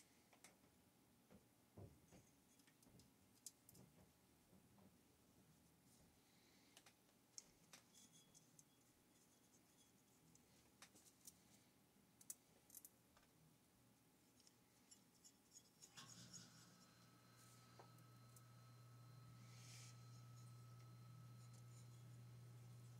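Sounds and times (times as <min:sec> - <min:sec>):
light scraping of parts: 0:07.4 - 0:11.6, 0:14.3 - 0:22.9
small parts clicking: 0:12.2 - 0:13.3
low steady hum: 0:13.4 - 0:22.9.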